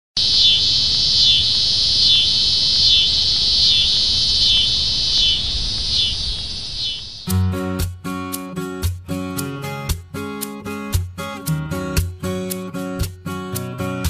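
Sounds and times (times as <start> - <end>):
insect chorus buzzing: 0.2 - 7.5.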